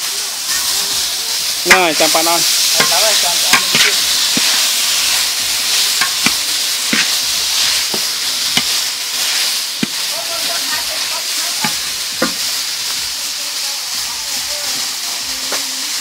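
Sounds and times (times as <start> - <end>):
food sizzling in oil: 0.0 - 16.0
utensil knocking on pan: 2.8 - 4.6, 6.0 - 7.2, 7.9 - 8.8, 9.8 - 10.6, 11.6 - 12.5.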